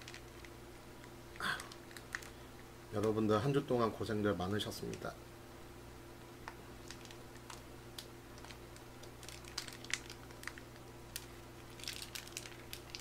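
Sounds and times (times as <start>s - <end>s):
plastic pouch crinkling: 0.0s - 0.6s, 1.4s - 2.4s, 6.8s - 13.0s.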